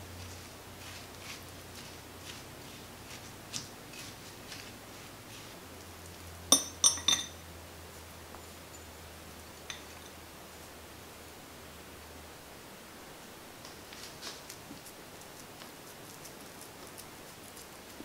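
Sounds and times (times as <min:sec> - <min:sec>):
glass bowl clinking on metal: 0:06.5 - 0:07.4, 0:09.7 - 0:10.2.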